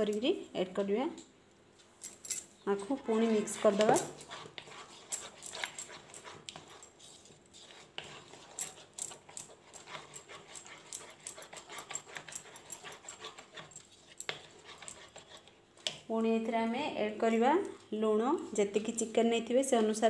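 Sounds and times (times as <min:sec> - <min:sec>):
spatula scraping in plastic bowl: 0:02.7 - 0:15.6.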